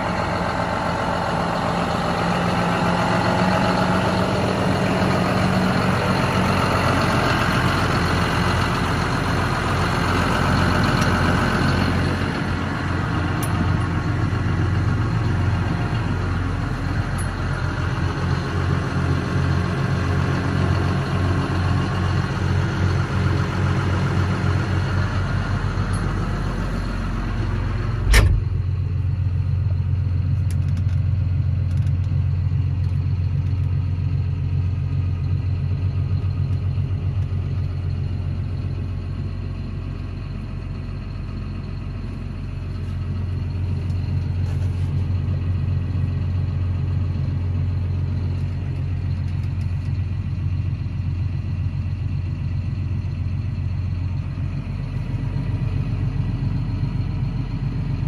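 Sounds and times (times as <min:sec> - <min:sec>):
diesel tractor idling: 0:00.0 - 0:58.0
sharp thump: 0:28.1 - 0:28.6.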